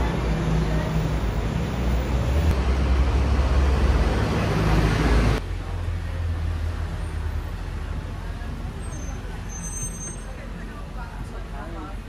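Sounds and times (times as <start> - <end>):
heavy vehicle engine rumble: 0.0 - 12.0
passing traffic: 0.0 - 12.0.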